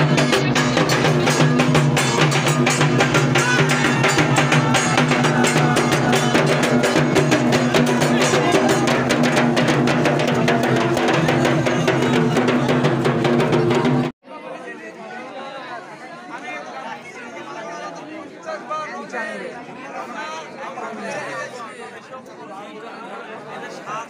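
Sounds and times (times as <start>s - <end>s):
fast drumming: 0.0s - 14.1s.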